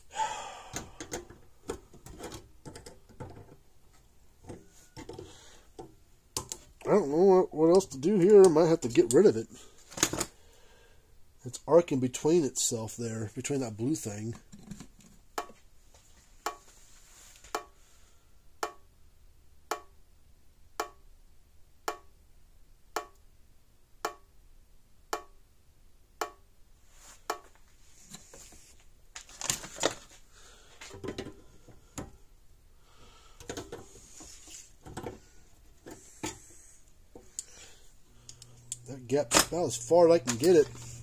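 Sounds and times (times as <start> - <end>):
handling knocks and rustling: 26.9 - 32.2, 33.4 - 37.4
electric fence charger snapping: 38.2 - 39.6.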